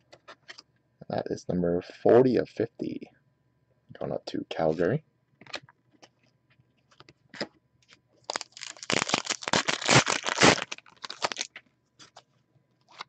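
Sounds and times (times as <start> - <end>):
foil wrapper tearing and crinkling: 8.3 - 12.2.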